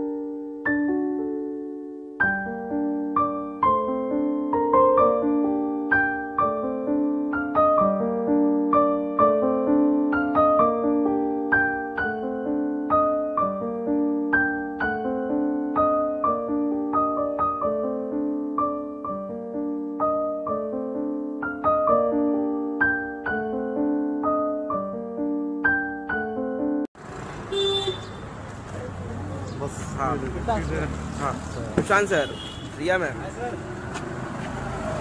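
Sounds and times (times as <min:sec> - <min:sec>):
flowing piano music: 0:00.0 - 0:26.9.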